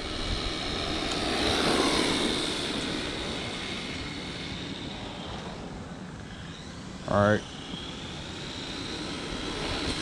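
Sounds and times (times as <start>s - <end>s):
rc truck electric motor whining: 0.0s - 10.0s.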